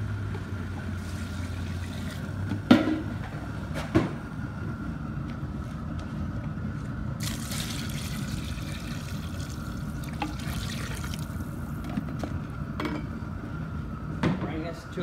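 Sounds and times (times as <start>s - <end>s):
water pouring into a pot: 7.2s - 11.5s.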